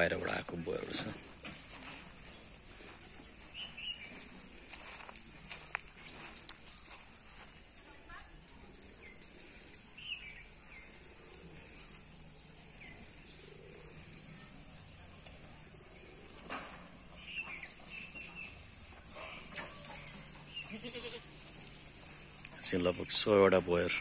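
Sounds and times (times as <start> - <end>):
goats bleating: 20.6 - 21.4.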